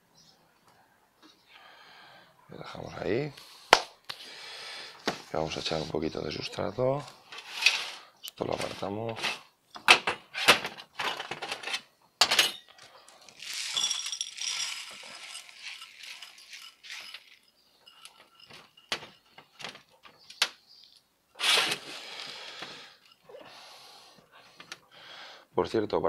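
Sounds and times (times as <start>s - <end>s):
grains rattling into plastic pot: 13.3s - 19.8s.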